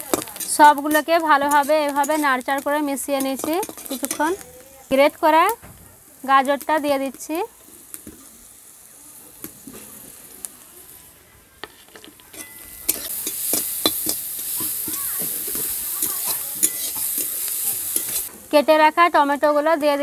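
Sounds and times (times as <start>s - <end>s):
metal spatula scraping pan: 0.0s - 4.4s, 11.7s - 18.3s
vegetables frying in oil: 0.0s - 20.0s.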